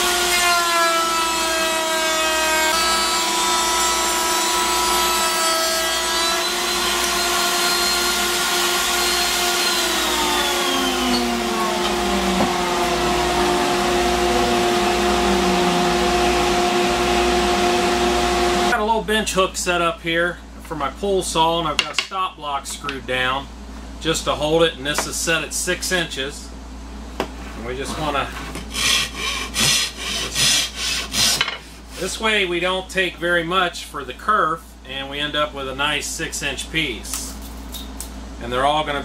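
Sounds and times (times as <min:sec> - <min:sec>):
router cutting wood: 0:00.0 - 0:18.7, 0:28.7 - 0:31.4
dust collector running: 0:00.0 - 0:18.9.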